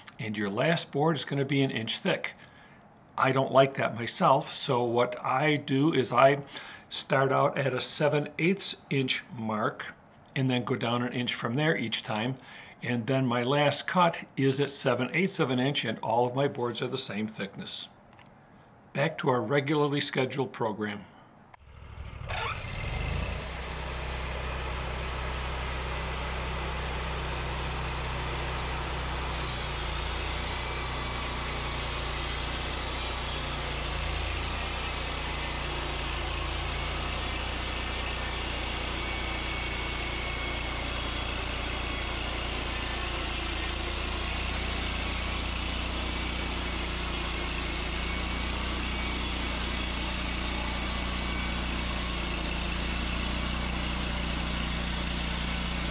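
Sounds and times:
band sawmill cutting log: 21.6s - 55.9s.

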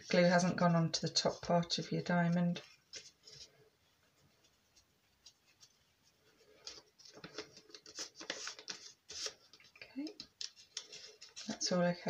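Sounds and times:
paper rustling and crinkling: 2.5s - 11.8s.

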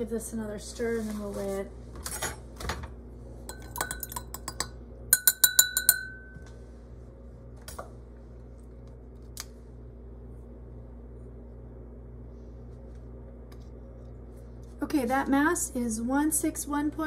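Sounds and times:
stirrer clinking against glass: 3.5s - 6.4s.

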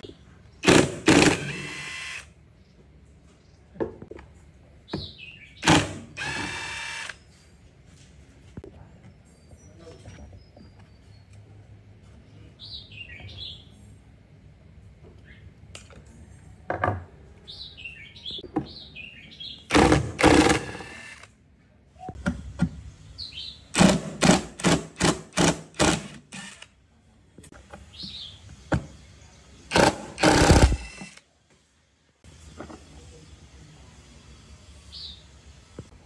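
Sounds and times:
cordless drill bursts: 0.6s - 2.3s, 5.6s - 7.2s, 19.7s - 21.3s, 23.8s - 26.7s, 29.7s - 31.2s.

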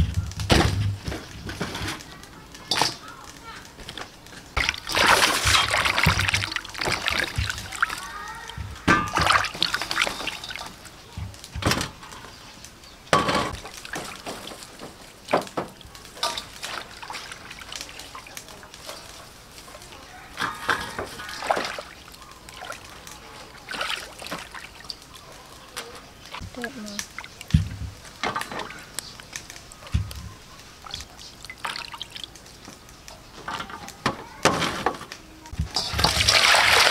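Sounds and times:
water trickling and dripping: 2.2s - 34.0s, 35.5s - 36.9s
hands splashing in bowl of water: 4.6s - 8.0s, 9.0s - 10.6s, 35.8s - 36.9s.

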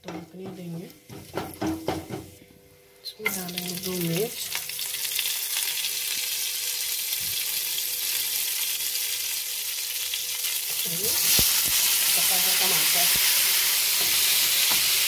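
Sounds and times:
spices sizzling in hot oil: 3.1s - 15.0s.

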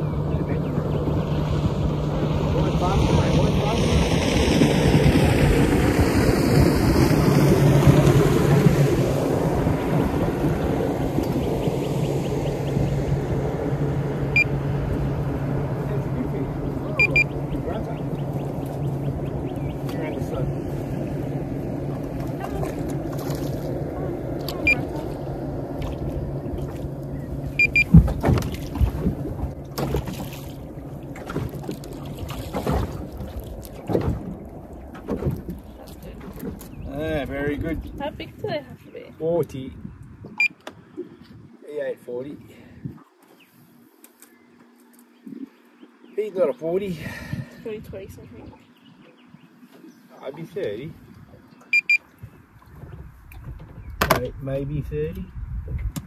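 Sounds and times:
steady low hum: 0.0s - 38.8s
wind rumbling on microphone: 0.0s - 41.6s, 42.3s - 43.8s, 47.0s - 56.0s.

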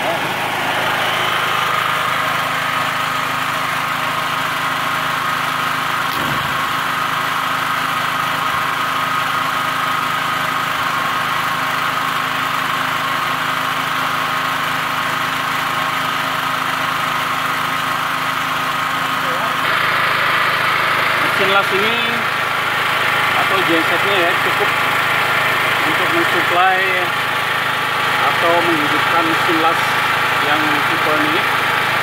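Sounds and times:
generator engine running: 0.0s - 32.0s.

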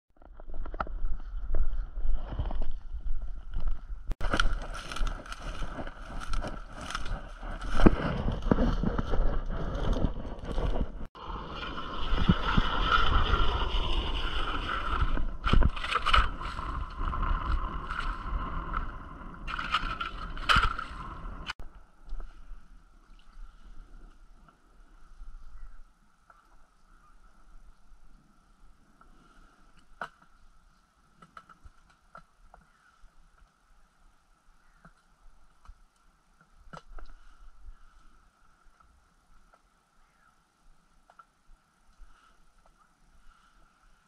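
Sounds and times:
ice auger grinding through ice: 4.2s - 21.6s.

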